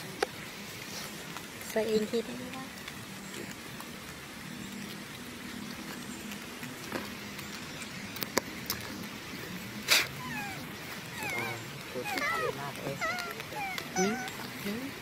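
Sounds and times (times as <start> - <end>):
monkey squeaks: 10.2 - 14.6.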